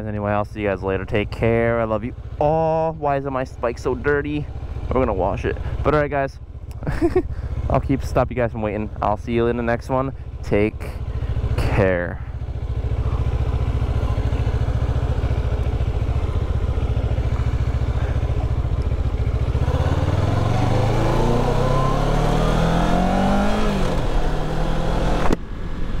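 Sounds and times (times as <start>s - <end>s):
motorcycle engine idling and revving: 0.0s - 26.0s
sharp click: 25.2s - 25.4s.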